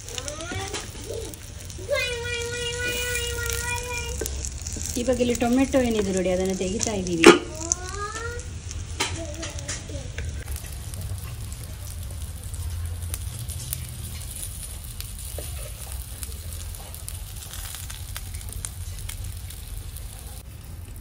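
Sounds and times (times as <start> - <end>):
meat sizzling in oil: 0.0 - 21.0
spatula scraping and clicking: 2.8 - 7.8.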